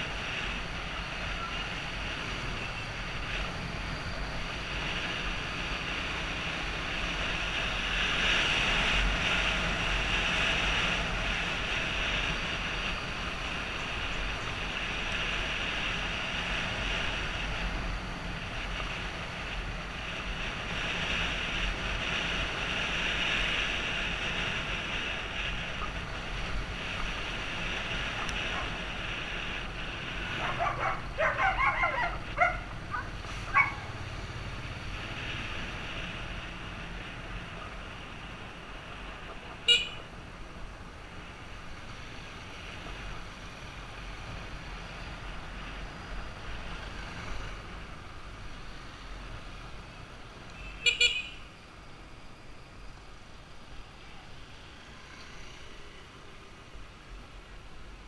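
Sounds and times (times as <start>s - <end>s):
wind noise: 0.0s - 51.0s
short horn beeps: 39.7s - 40.0s, 50.6s - 51.5s.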